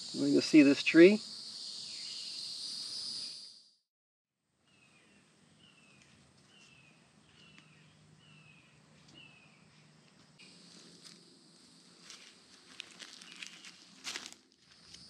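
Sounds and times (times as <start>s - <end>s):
insect drone: 0.0s - 3.8s, 7.5s - 15.0s.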